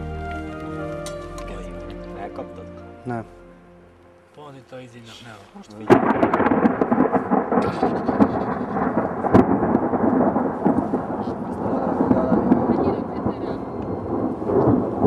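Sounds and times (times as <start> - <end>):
wind buffeting microphone: 5.6 - 15.0.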